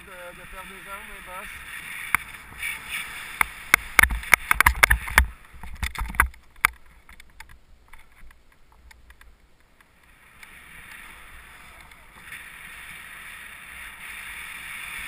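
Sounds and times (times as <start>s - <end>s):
skis sliding through powder snow: 0.0s - 5.4s, 10.0s - 15.0s
sharp clicks and knocks: 3.4s - 9.9s.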